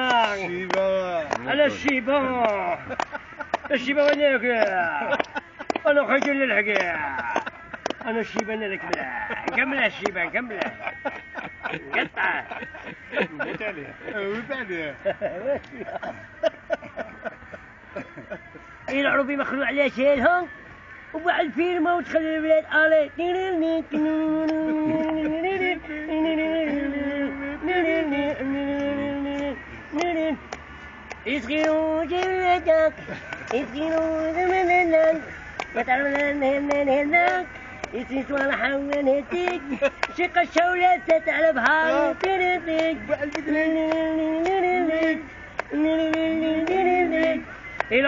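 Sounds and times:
man singing long held notes: 0.0 - 10.2, 19.8 - 30.6, 31.2 - 48.0.

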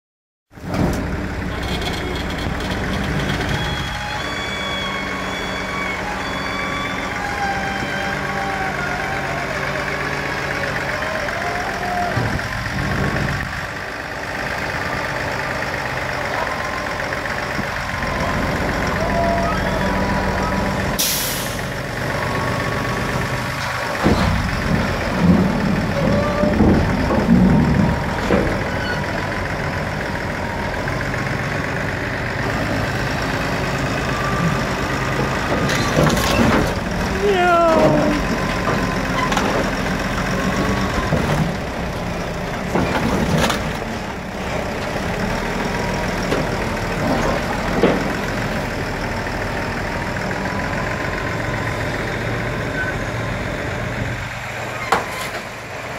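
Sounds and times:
heavy machinery engine running: 0.6 - 55.9
metal bangs and clunks: 23.6 - 29.2.

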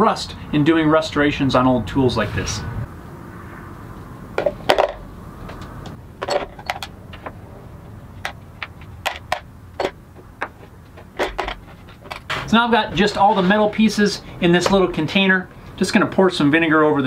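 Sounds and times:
metal parts clinking into container: 6.2 - 7.0.

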